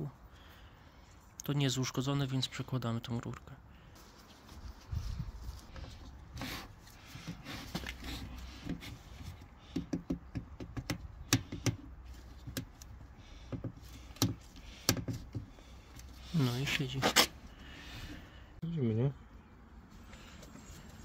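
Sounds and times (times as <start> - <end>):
hard plastic clicking and knocking: 9.7 - 12.8, 13.4 - 15.5.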